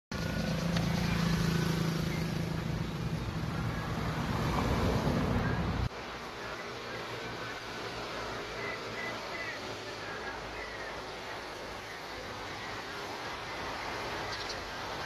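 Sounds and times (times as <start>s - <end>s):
motor vehicle engine hum: 0.1s - 15.0s.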